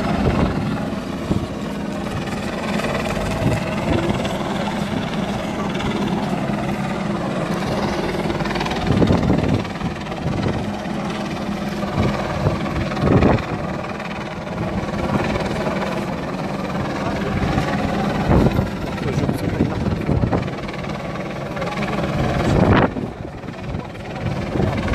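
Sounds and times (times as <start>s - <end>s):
engine drone: 0.0s - 24.9s.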